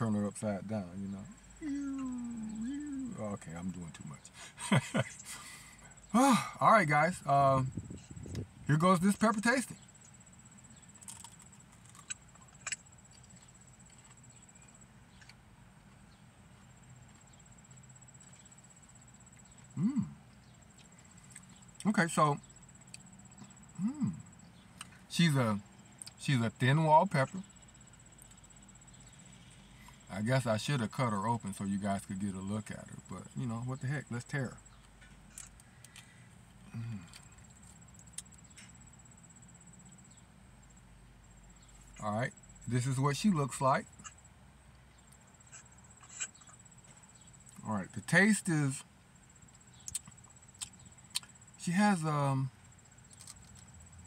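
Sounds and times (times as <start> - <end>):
person humming: 1.6 - 3.2, 19.8 - 20.2, 23.8 - 24.2
quiet chewing: 10.0 - 25.1, 25.8 - 26.2, 34.7 - 38.8, 44.9 - 47.6, 49.5 - 51.5, 52.9 - 53.9
pepper crunching: 10.9 - 13.4, 49.7 - 51.3, 53.1 - 53.7.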